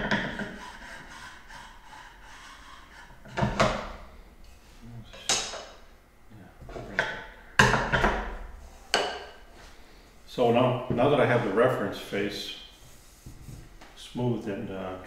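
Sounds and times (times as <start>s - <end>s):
sharp wooden knocks: 0.0s - 0.6s, 6.9s - 9.4s.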